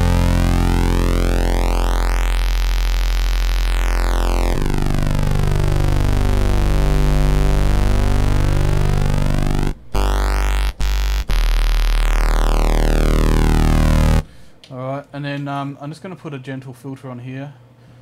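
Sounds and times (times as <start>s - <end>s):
synthesizer low note: 0.0s - 14.6s.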